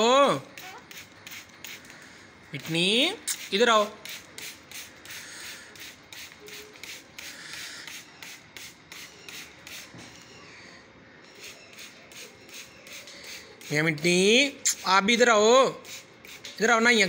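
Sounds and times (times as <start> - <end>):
spray bottle hissing: 0.5 - 2.0, 3.2 - 10.0, 11.3 - 16.6.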